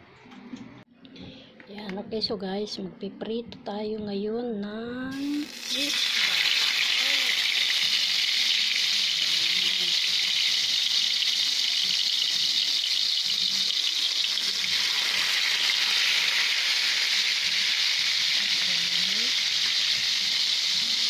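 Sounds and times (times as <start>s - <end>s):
fish sizzling in hot oil: 5.2s - 21.0s.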